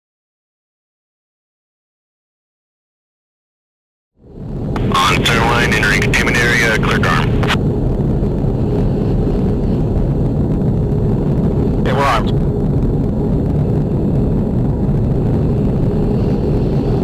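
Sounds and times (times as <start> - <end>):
jet engine roar in cabin: 4.2 - 17.0
radio voice: 4.8 - 7.6, 11.8 - 12.4.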